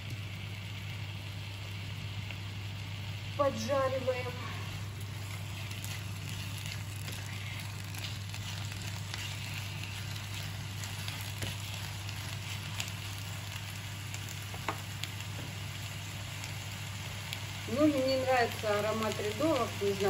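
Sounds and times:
mushrooms sizzling in a frying pan: 0.0s - 20.0s
steady low hum: 0.0s - 20.0s
spatula scraping a pan: 5.1s - 12.9s.

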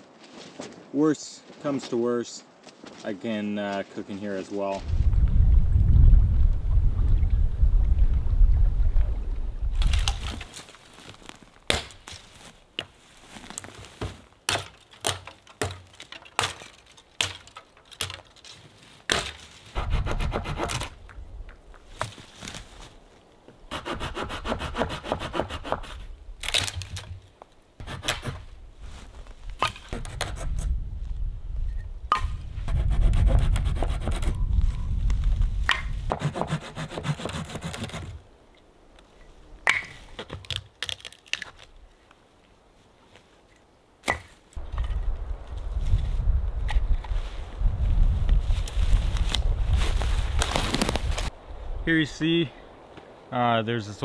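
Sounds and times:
dry wood snapping: 9.8s - 12.2s, 14.5s - 19.4s, 26.4s - 28.4s, 39.6s - 42.2s, 50.3s - 51.3s
handsaw cutting branch: 19.1s - 20.9s, 23.7s - 26.7s, 27.8s - 28.4s, 32.7s - 34.4s, 36.1s - 38.2s.

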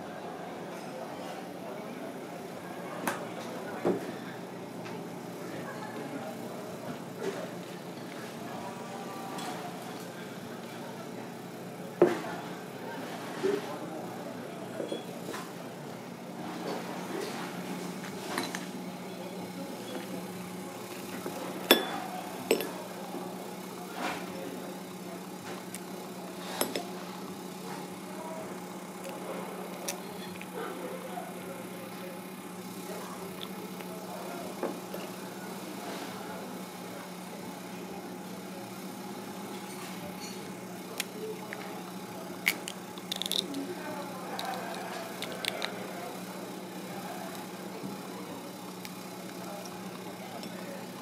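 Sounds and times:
clinks on crockery: 21.7s - 22.8s.

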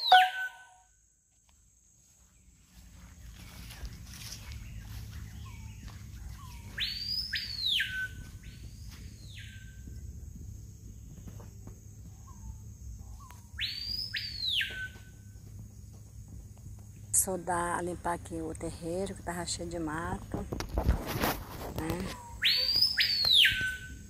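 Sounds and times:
bird whistled calls: 0.0s - 0.8s, 5.4s - 9.6s, 13.2s - 15.1s, 22.1s - 24.0s.

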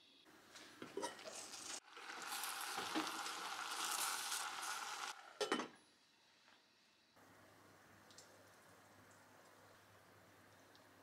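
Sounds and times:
cabbage sizzling in a pot: 0.8s - 7.0s.

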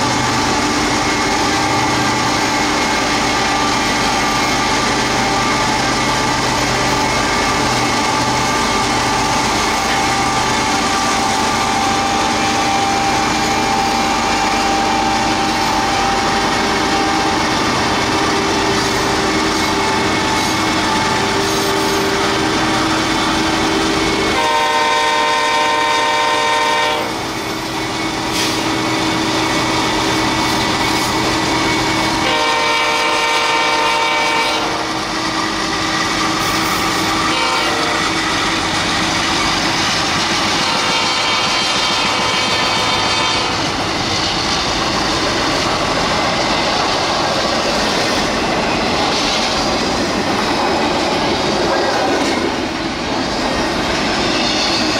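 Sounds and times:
locomotive horn blasts: 23.9s - 27.3s, 32.2s - 35.1s, 37.1s - 38.2s, 40.5s - 43.8s
train wheels clattering: 35.0s - 54.9s.

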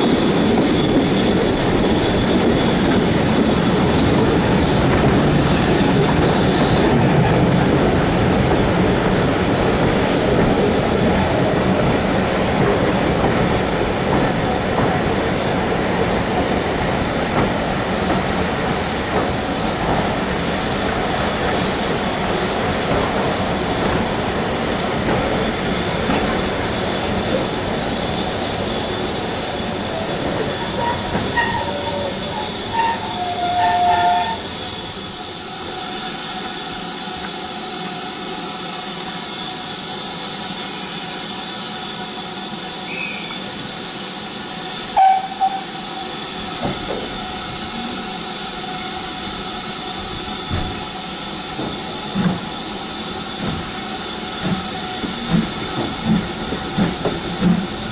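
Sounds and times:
steam hissing from locomotive: 0.0s - 57.9s
train coach running noise: 0.0s - 57.9s
brake squeals: 30.0s - 35.4s.

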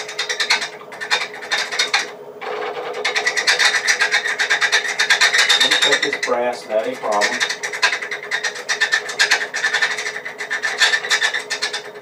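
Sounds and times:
lathe cutting brass rasping chatter: 3.1s - 12.0s.

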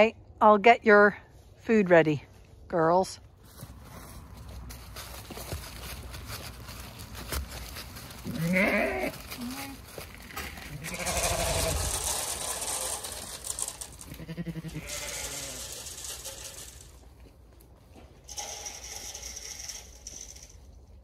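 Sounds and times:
feed rustling from bucket: 4.9s - 17.1s
sheep bleating: 8.2s - 9.8s, 10.5s - 11.8s, 14.1s - 15.8s.

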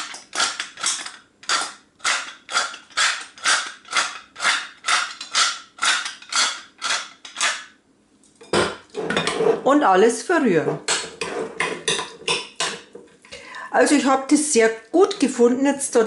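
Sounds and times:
pepper mill grinding: 0.0s - 7.7s.

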